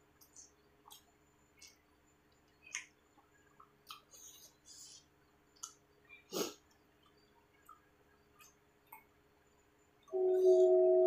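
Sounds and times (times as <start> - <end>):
wet chewing clicks: 2.4 - 4.9, 5.5 - 5.8, 6.4 - 9.1
lip smacks: 2.7 - 9.1.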